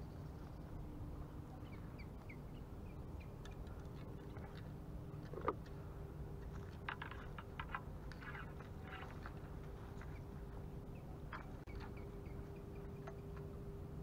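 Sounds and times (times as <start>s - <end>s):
steady low hum: 0.0s - 14.0s
small birds chirping: 8.1s - 13.4s.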